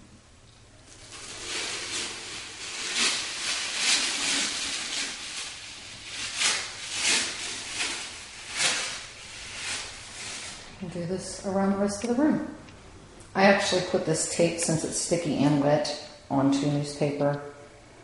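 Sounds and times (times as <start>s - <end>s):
tape peeling off wood: 1.2s - 10.6s.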